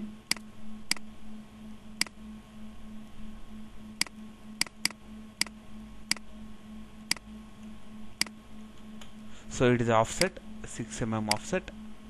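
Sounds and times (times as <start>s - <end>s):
steady low hum: 0.0s - 12.0s
computer mouse clicking: 4.0s - 6.2s.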